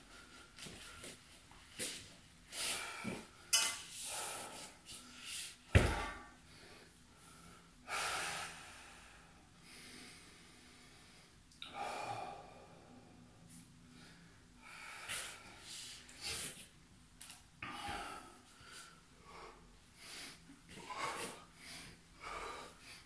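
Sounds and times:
man breathing hard: 1.8s - 16.6s, 17.6s - 23.0s.

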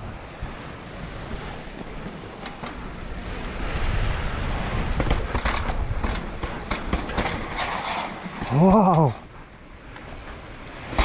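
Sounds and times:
bike tyres rumbling: 0.0s - 11.0s
bike rattling over joints: 4.6s - 9.4s, 10.0s - 11.0s
bike knocks and clatters: 4.9s - 9.1s, 10.3s - 11.0s.

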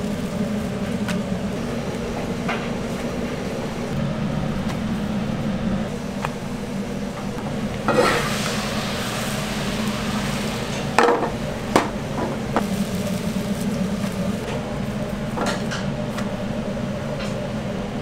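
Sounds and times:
kitchen hiss and hum: 0.0s - 18.0s
frying pans clattering: 7.9s - 8.6s, 10.0s - 13.6s.

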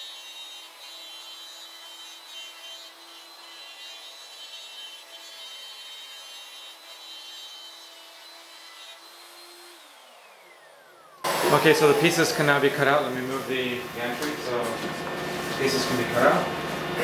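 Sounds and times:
router spindle whine: 0.0s - 17.0s
end mill cutting wood: 4.7s - 17.0s.

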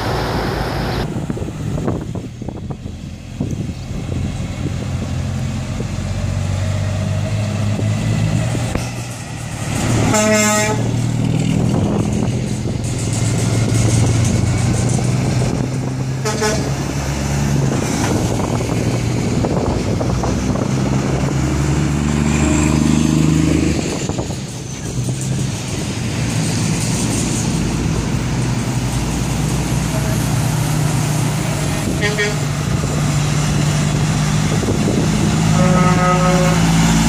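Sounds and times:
diesel trucks passing: 0.0s - 37.0s
truck horn: 9.9s - 11.0s, 16.2s - 17.0s, 29.8s - 30.5s, 31.6s - 32.8s, 35.2s - 37.0s.

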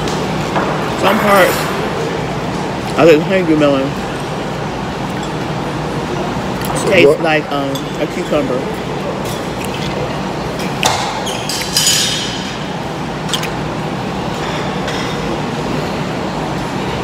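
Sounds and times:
steady background hum: 0.0s - 17.0s
cutlery clinking against plates: 10.6s - 12.6s
cutlery clatter: 11.4s - 12.4s.

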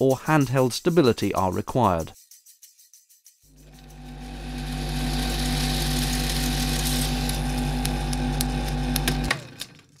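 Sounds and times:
film projector whirring: 3.6s - 10.0s.

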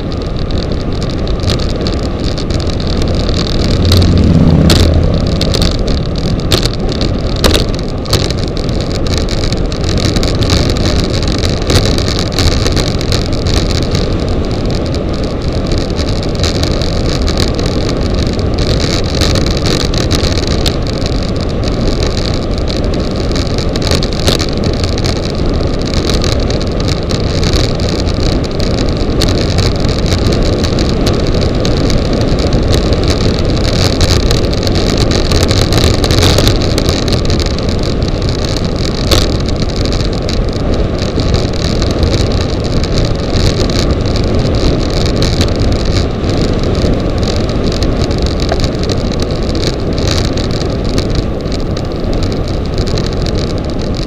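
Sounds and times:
sharp knocks from road bumps: 0.0s - 14.7s
tyres rumbling on asphalt: 0.0s - 54.0s
wind buffeting microphone: 0.0s - 54.0s.

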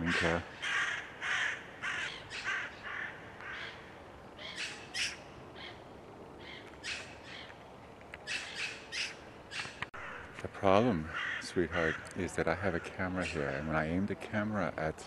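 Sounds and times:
crows cawing: 0.0s - 5.8s, 6.4s - 7.6s, 8.2s - 10.4s, 11.0s - 13.7s.

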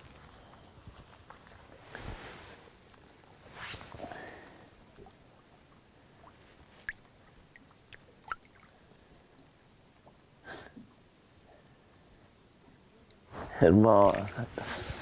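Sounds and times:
river water splashing: 6.0s - 8.9s.

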